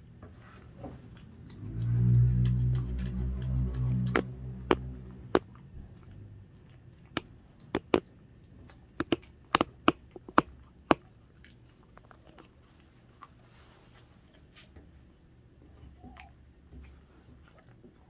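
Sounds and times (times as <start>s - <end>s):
dog chewing raw chicken: 0.6s - 14.5s.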